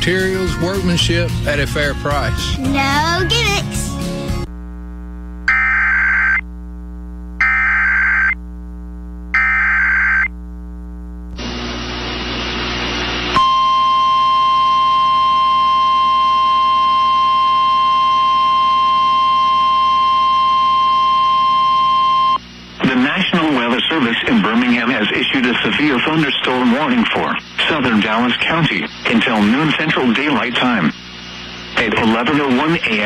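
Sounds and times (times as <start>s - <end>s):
radio static: 4.5s - 13.4s, 22.5s - 33.0s
screeching data bursts: 5.5s - 6.4s, 7.4s - 8.4s
steady alarm tone: 5.5s - 6.4s, 7.4s - 8.4s, 9.4s - 10.3s, 13.3s - 22.4s.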